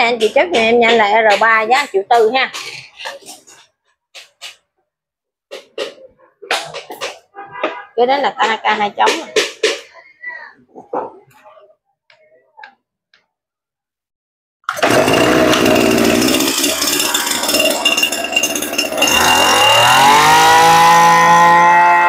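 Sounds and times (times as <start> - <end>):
brush cutter engine running: 14.7 - 22.0.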